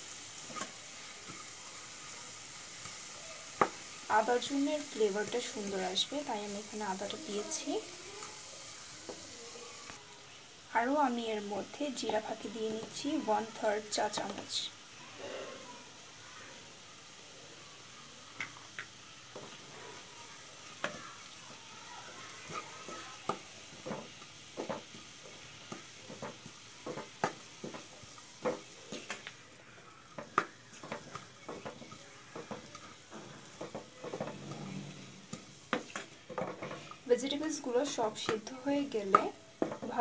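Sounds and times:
vegetables sizzling: 0:00.0 - 0:40.0
wooden spatula scraping a pan: 0:22.2 - 0:40.0.

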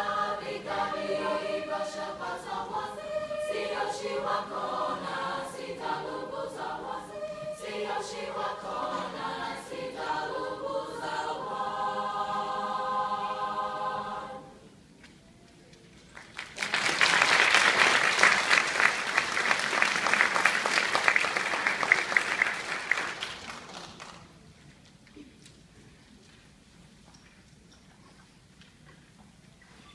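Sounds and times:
choir singing unaccompanied: 0:00.0 - 0:14.7
audience applauding: 0:16.1 - 0:24.3.

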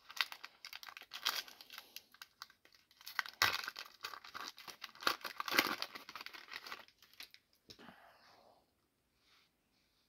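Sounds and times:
foil wrapper tearing and crinkling: 0:00.0 - 0:07.4.

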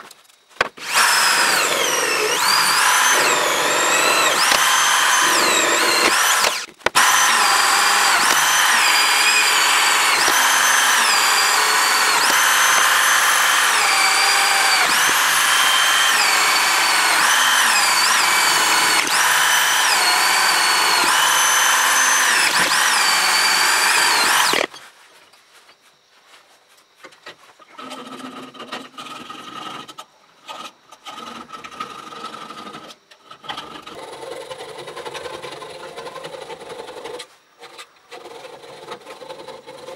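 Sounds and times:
electric drill boring steel: 0:00.6 - 0:24.8.

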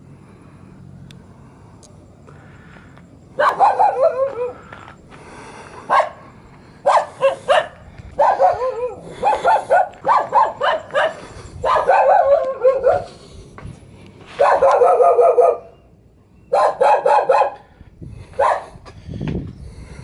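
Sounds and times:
dog barking: 0:03.4 - 0:04.6, 0:05.9 - 0:13.2, 0:14.4 - 0:15.8, 0:16.5 - 0:17.6, 0:18.4 - 0:18.8.

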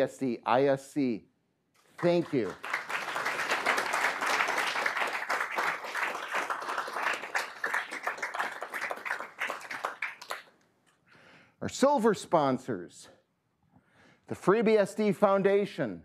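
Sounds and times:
audience applauding: 0:01.9 - 0:10.5.

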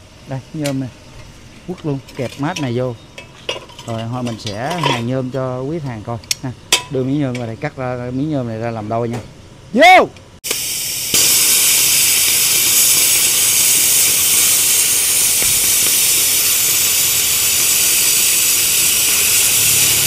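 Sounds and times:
plasma cutting torch hissing: 0:10.5 - 0:20.0.

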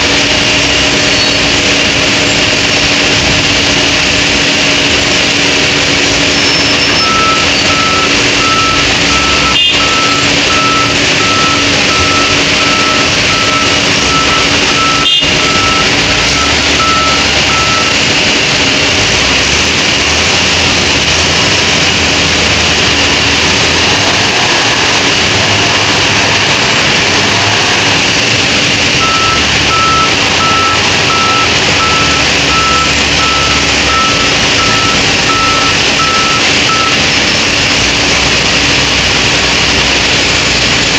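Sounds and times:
diesel engine under load: 0:00.0 - 0:40.9
reversing alarm beeping: 0:06.0 - 0:19.7, 0:27.9 - 0:37.2.

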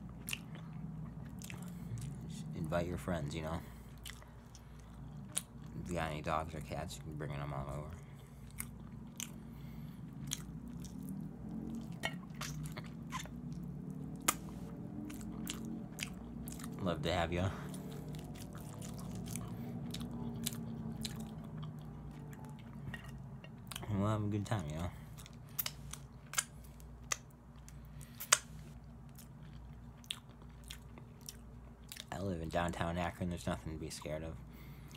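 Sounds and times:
chewing with wet mouth clicks: 0:00.0 - 0:05.9, 0:07.6 - 0:23.9, 0:24.8 - 0:32.1
steady low hum: 0:00.0 - 0:34.9
lip smacks: 0:00.2 - 0:02.3, 0:08.3 - 0:16.8, 0:25.2 - 0:27.3, 0:28.0 - 0:29.3.

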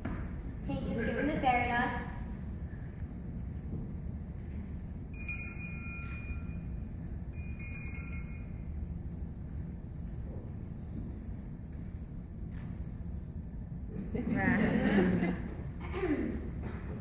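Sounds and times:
low auditorium hum: 0:00.0 - 0:17.0
shimmering high chimes: 0:05.1 - 0:09.0.

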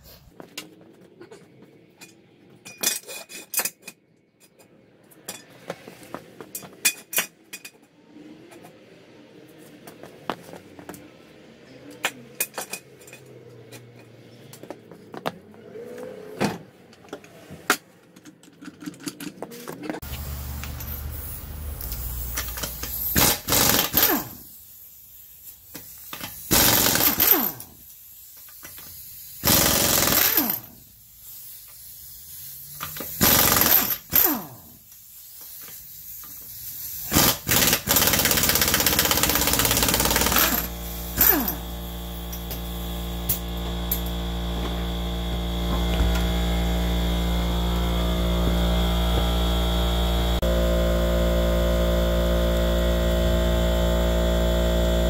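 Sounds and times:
impact wrench rattling: 0:21.9 - 0:24.4, 0:25.7 - 0:27.6, 0:28.4 - 0:30.7, 0:32.8 - 0:44.2
steady drone of held tones: 0:40.5 - 0:55.0.

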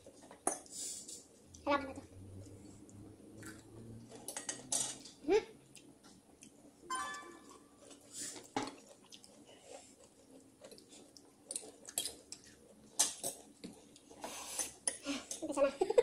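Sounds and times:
chewing: 0:02.2 - 0:06.8, 0:07.6 - 0:15.4.

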